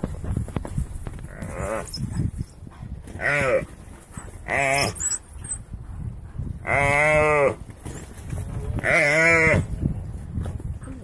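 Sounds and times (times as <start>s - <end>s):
dogs scuffling: 7.7s - 8.9s.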